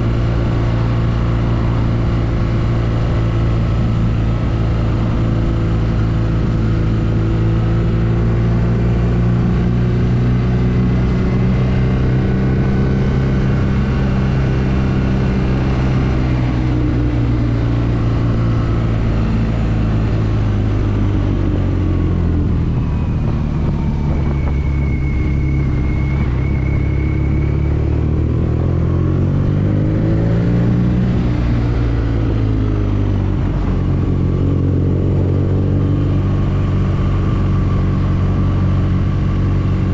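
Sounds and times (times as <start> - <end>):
motorcycle engine at low revs: 0.0 - 39.9.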